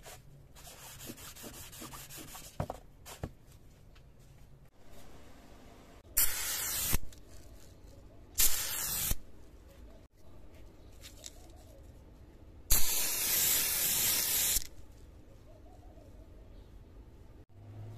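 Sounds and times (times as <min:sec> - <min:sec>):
aerosol spray can bursts: 0:06.2 - 0:07.0, 0:08.4 - 0:09.2, 0:12.7 - 0:14.7.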